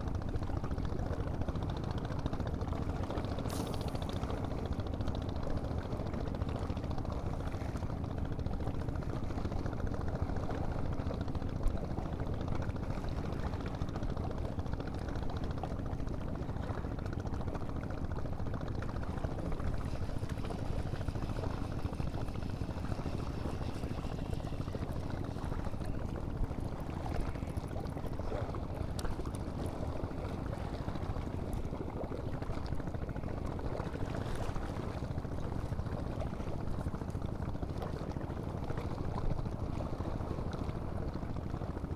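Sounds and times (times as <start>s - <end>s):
water lapping at stone shore: 15.8s - 41.9s.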